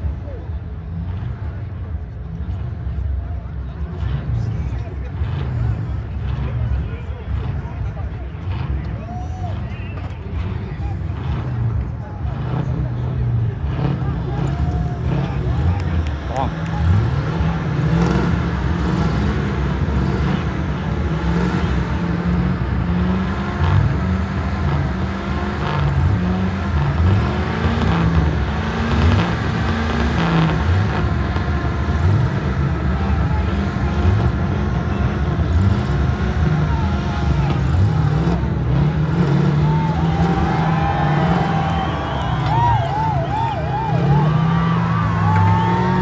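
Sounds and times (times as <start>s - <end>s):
truck engines revving: 0.0s - 46.0s.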